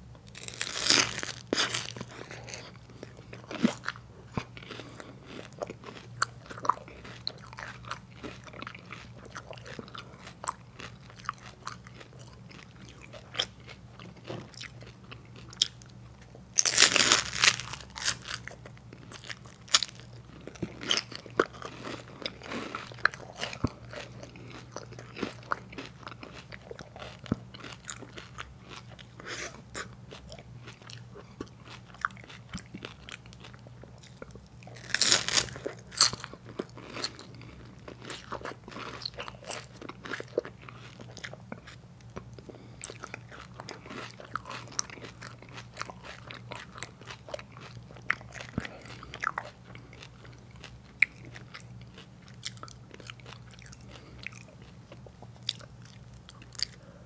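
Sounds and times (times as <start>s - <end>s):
crunching wafer cones: 0.3s - 15.8s, 16.6s - 56.8s
chewing: 0.4s - 57.0s.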